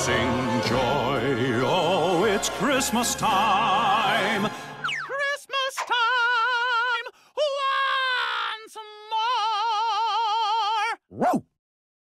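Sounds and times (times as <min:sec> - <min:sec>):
voices singing with vibrato: 0:00.0 - 0:07.1.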